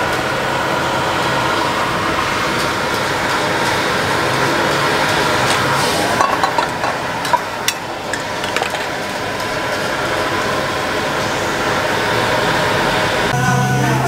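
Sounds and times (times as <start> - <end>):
utensils clinking on ceramic bowl: 6.2 - 9.0.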